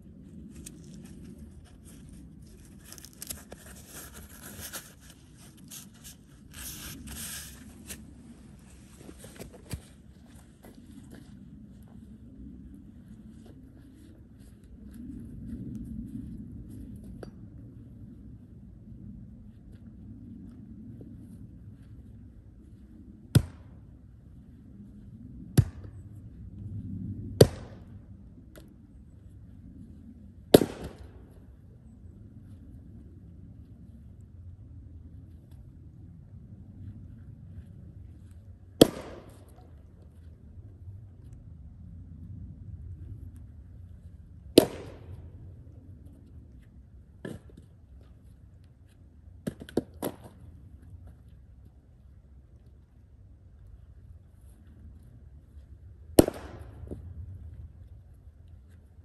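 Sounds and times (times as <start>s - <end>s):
axe striking firewood: 30.6s - 31.0s, 38.8s - 39.4s, 44.6s - 45.1s, 56.2s - 57.0s.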